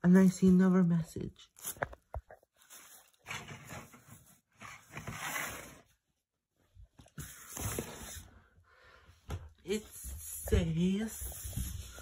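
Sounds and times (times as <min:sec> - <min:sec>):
paper rustling and crinkling: 0:01.6 - 0:05.9.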